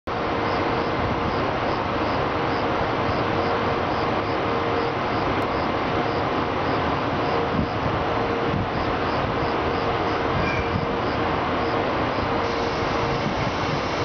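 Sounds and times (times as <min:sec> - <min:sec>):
electric locomotive humming: 0:00.1 - 0:14.0
rushing noise: 0:05.1 - 0:14.0.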